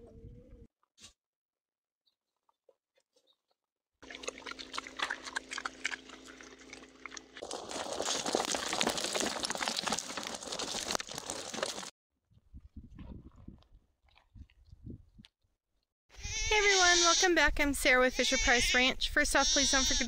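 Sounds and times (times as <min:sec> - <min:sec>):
steady low hum: 0:04.0 - 0:07.8
pig chewing: 0:04.0 - 0:11.9.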